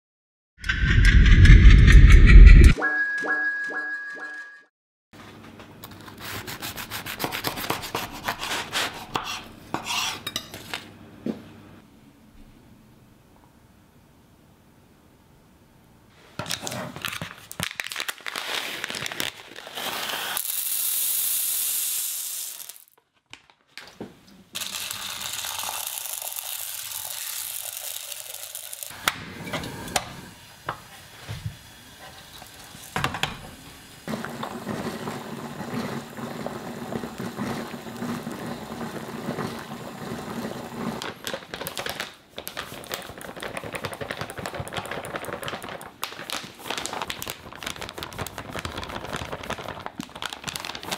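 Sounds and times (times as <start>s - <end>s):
plastic bag crinkling: 17.0s - 20.1s, 41.0s - 50.9s
gas burner hissing: 29.6s - 41.0s.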